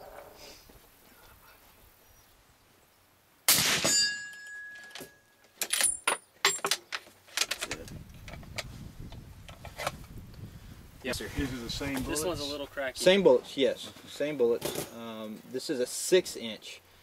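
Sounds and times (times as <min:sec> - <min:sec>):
suppressed rifle shot: 0:03.5 - 0:04.0.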